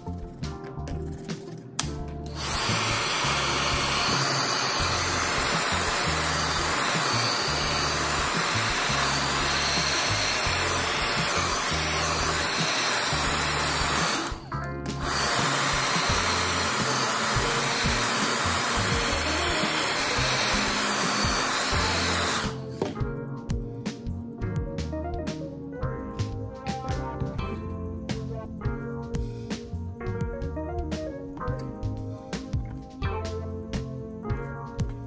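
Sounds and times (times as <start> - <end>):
hair dryer blowing: 2.3 - 23.0.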